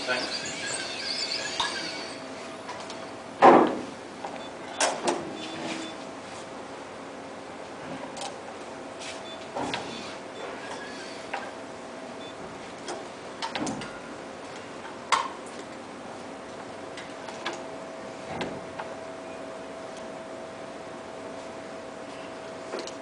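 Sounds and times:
faint steady whine: 0.0s - 3.4s.

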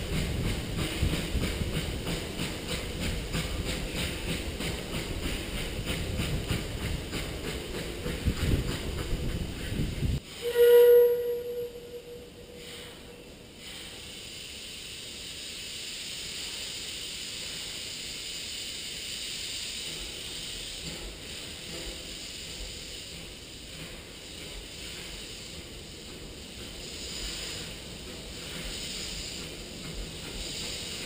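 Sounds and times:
steady steam hiss: 0.0s - 31.0s
steam train wheel clatter: 0.0s - 31.0s
steam whistle: 10.3s - 12.8s.

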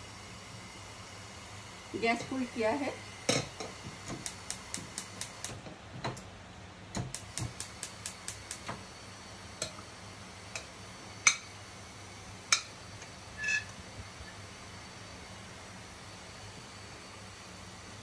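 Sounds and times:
butter ticking in hot oil: 3.3s - 5.6s, 6.9s - 8.9s, 12.3s - 13.7s.

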